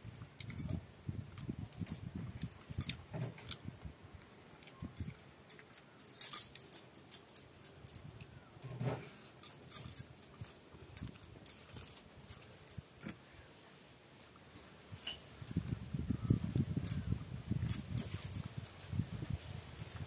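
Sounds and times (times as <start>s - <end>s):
bangles jingling: 4.8s - 8.1s, 9.4s - 13.0s, 16.6s - 18.8s.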